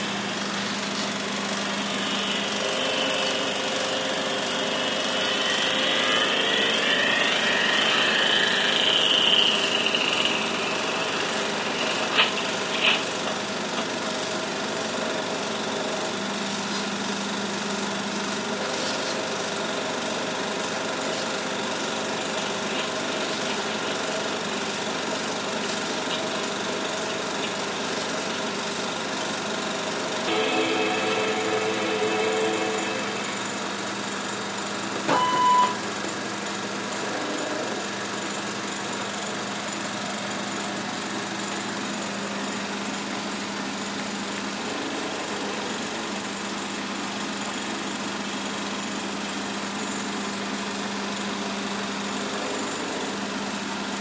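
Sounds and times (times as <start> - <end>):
model airplane engine whining: 0.0 - 13.8, 18.4 - 35.2
film projector mechanism running: 0.0 - 33.8.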